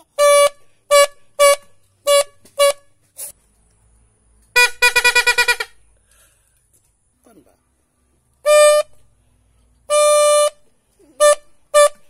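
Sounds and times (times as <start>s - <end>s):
bamboo toy horn buzzy toots: 0.0s - 3.4s, 4.6s - 5.8s, 8.4s - 9.0s, 9.9s - 12.0s.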